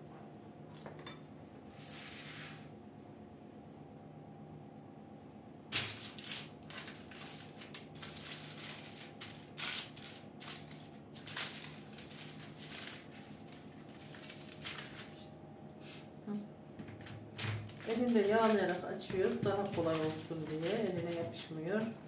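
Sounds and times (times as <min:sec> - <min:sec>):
baking paper rustling and crinkling: 0:05.7 - 0:15.4, 0:16.8 - 0:22.0.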